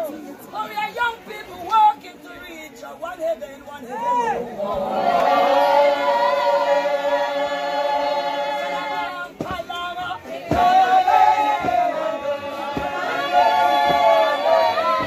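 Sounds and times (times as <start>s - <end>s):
congregation singing a hymn: 4.5s - 15.0s.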